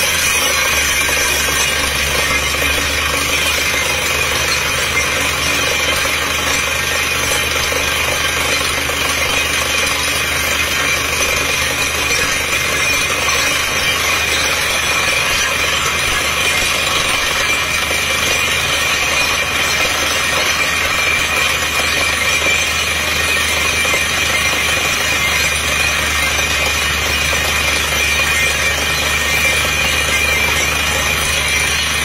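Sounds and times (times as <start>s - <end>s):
air hammer drilling clatter: 0.0s - 32.0s
engine and compressor running: 0.0s - 32.0s.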